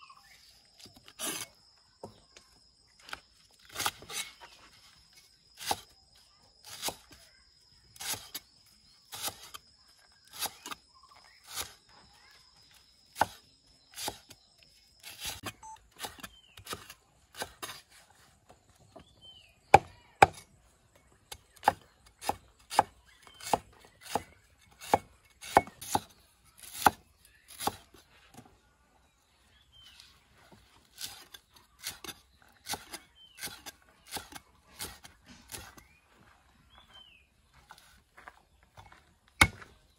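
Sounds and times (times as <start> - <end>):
cleaver chopping on wooden block: 19.7 - 20.5, 21.5 - 27.9, 39.4 - 39.7.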